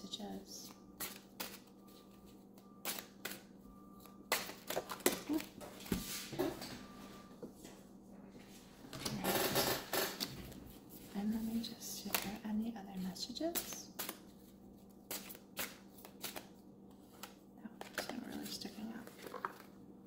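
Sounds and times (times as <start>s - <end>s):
paper cards being shuffled: 13.6s - 19.7s.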